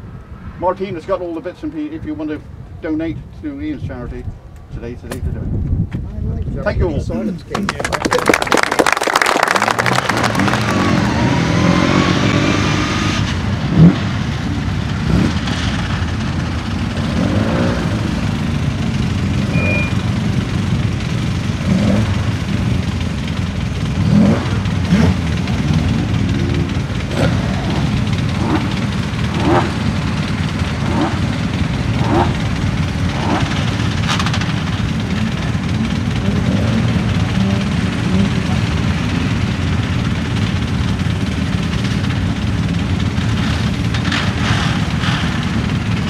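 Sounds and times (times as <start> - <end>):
car engine idling and revving: 9.6 - 46.0.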